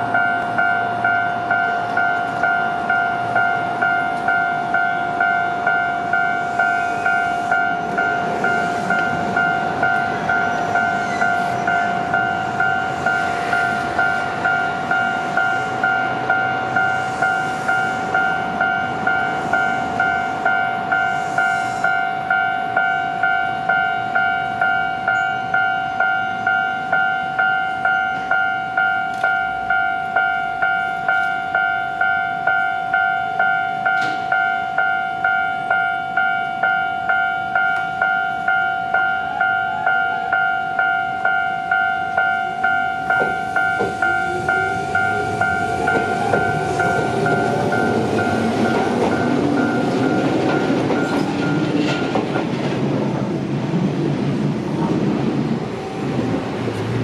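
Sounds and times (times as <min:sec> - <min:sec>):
level-crossing alarm dinging: 0:00.0 - 0:52.4.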